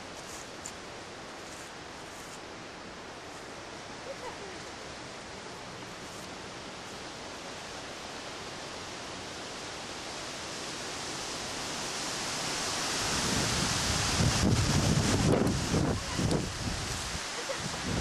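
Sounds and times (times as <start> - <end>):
wind hissing: 4.8 - 18.0
wind rumbling on microphone: 12.9 - 18.0.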